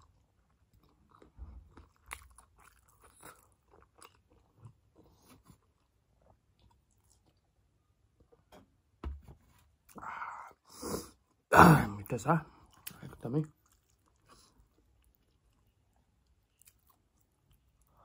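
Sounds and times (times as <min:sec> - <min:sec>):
person chewing: 0:00.0 - 0:08.5, 0:12.6 - 0:18.0.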